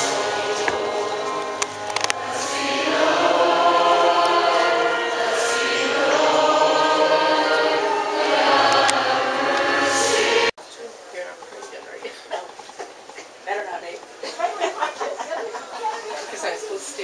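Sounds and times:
choir singing a hymn: 0.0 - 10.6.

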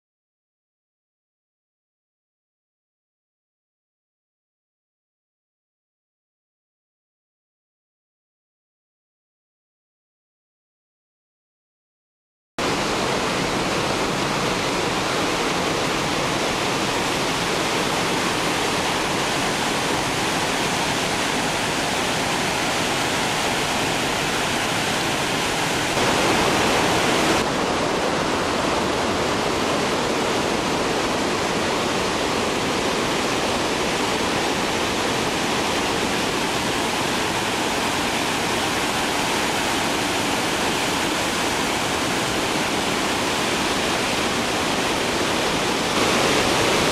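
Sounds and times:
water rushing over spillway: 12.6 - 46.9.

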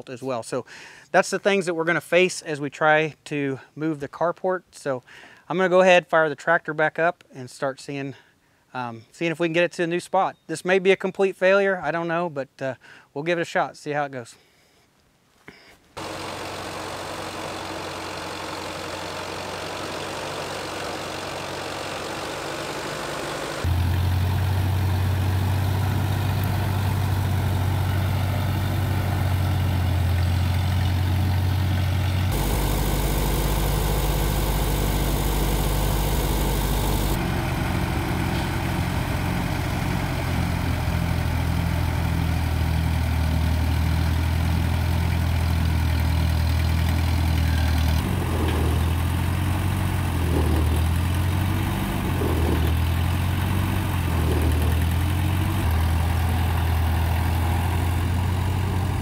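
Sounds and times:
tractor engine idling: 16.0 - 59.0.

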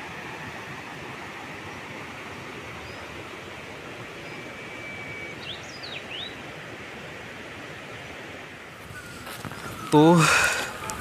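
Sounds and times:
stream flowing over rocks: 0.0 - 11.0
bird chirping: 4.2 - 6.4.

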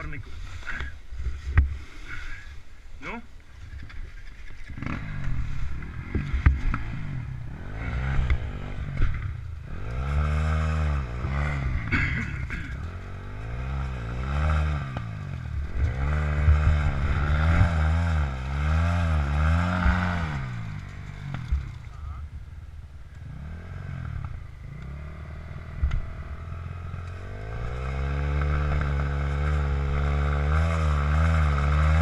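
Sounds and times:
knocks and scrapes: 3.6 - 7.1, 19.7 - 22.0
dirt bike engine revving: 4.7 - 22.3, 23.2 - 32.0.

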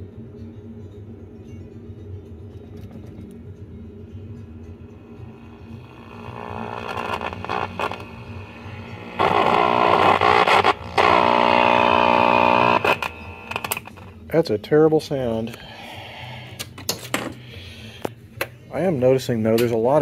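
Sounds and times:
harsh distorted pitched bursts: 5.3 - 13.9
radio hum and noise: 5.3 - 14.1.

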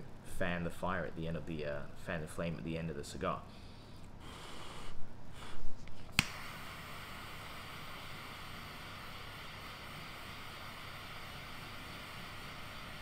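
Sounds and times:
short breaths: 3.5 - 5.8
lighter flame hissing: 4.0 - 13.0
torch lighter click: 6.1 - 13.0.

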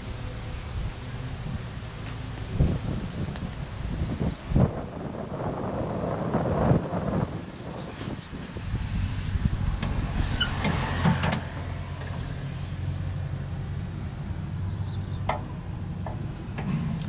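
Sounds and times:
sharp clicks and knocks: 15.2 - 17.0.

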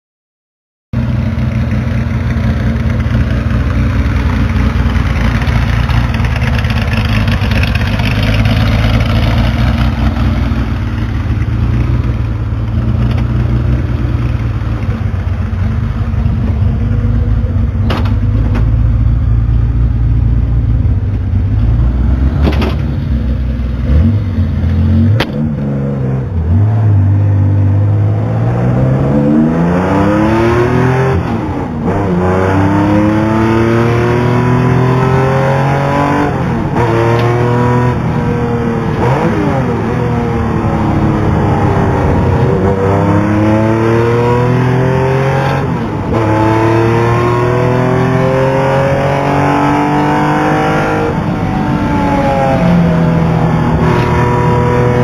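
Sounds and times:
car engine idling: 1.0 - 25.6
car revving and pulling away: 1.0 - 55.0.

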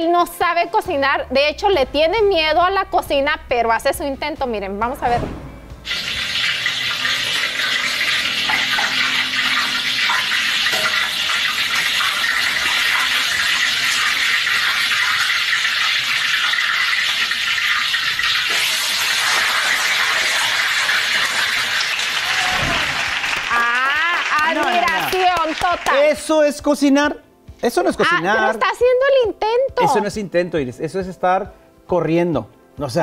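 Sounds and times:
food sizzling in hot oil: 5.8 - 23.6.

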